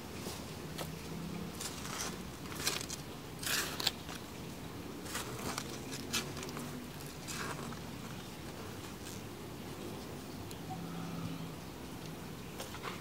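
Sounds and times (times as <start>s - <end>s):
trowel scraping soil: 1.6s - 4.2s, 5.0s - 9.3s.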